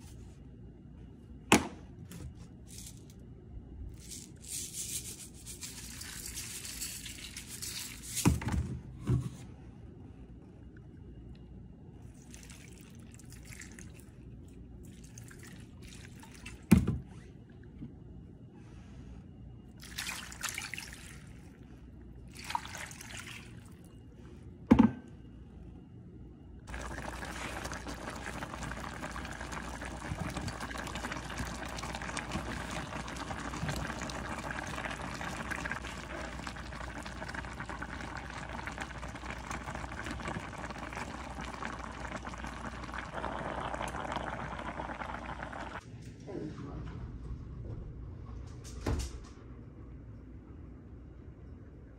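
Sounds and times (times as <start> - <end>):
broth bubbling in pan: 26.7 - 45.8
liquid pouring into pan: 26.7 - 45.8.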